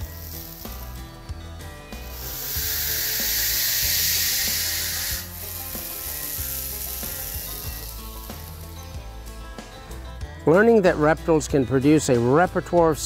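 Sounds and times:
snake hissing: 0:00.0 - 0:01.0, 0:01.9 - 0:08.8
soft music with plucked notes: 0:00.0 - 0:13.0.

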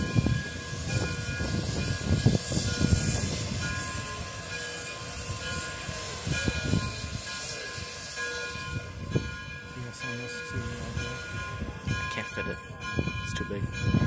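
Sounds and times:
steam hissing: 0:00.0 - 0:11.7
low rumbling of locomotive: 0:00.0 - 0:14.0
steam locomotive exhaust chuffs: 0:00.0 - 0:14.0.

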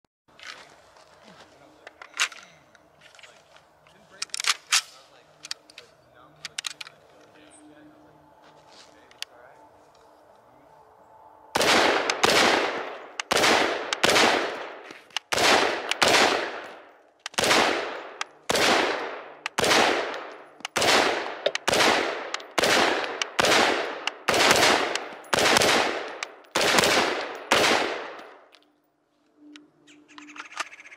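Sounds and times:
rifle shots echoing: 0:11.5 - 0:28.5.

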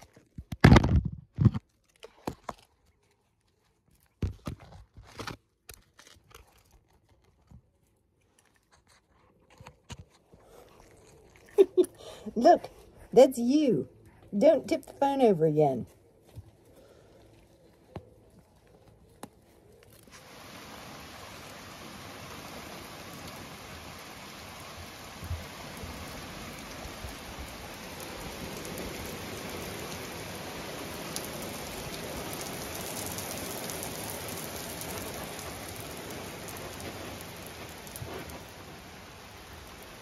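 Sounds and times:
rain falling on stone paving: 0:20.0 - 0:40.0.

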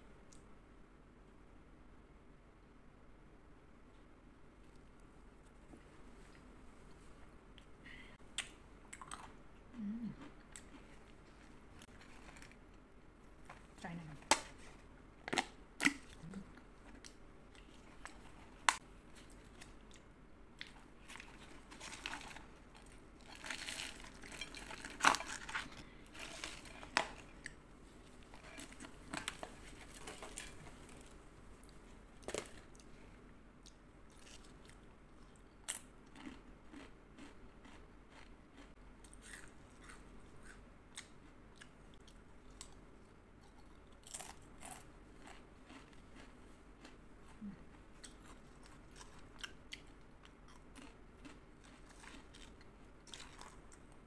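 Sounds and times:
crunching and chewing chips: 0:08.3 - 0:12.7, 0:14.7 - 0:33.0, 0:33.7 - 0:54.0.

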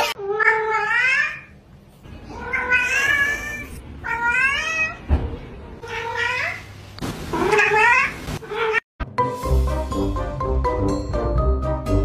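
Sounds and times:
cat meowing: 0:02.3 - 0:05.0, 0:07.4 - 0:08.8
thump: 0:05.1 - 0:05.4.

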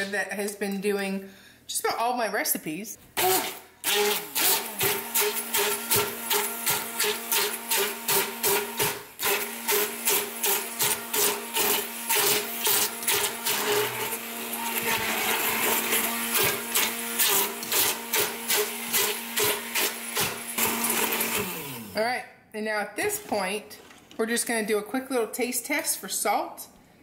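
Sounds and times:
stick blender motor whirring: 0:03.2 - 0:22.0.

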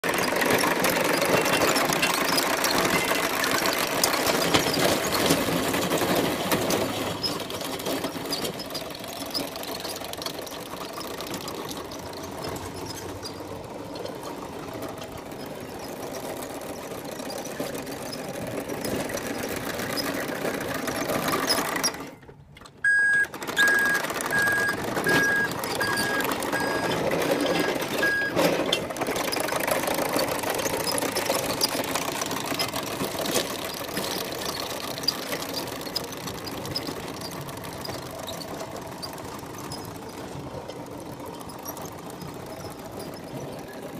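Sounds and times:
mini bulldozer tracks rattling: 0:00.0 - 0:43.9
steady electronic beeping: 0:22.9 - 0:26.9.

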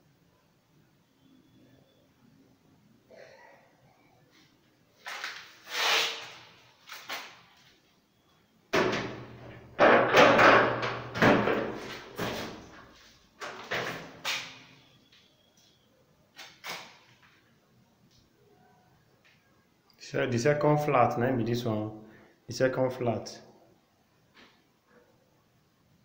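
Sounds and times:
loud knocks and bangs: 0:08.7 - 0:12.6.

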